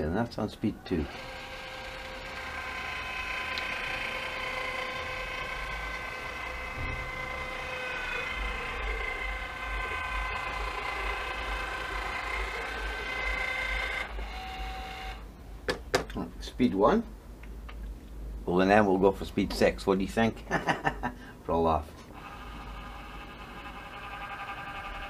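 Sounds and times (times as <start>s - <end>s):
caulking gun motor whining: 1.0s - 15.2s, 22.1s - 25.0s.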